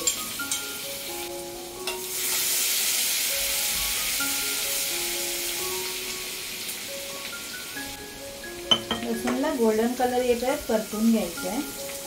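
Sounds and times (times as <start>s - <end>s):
garlic sizzling in hot oil: 0.0s - 12.0s
spoon stirring: 8.7s - 9.5s.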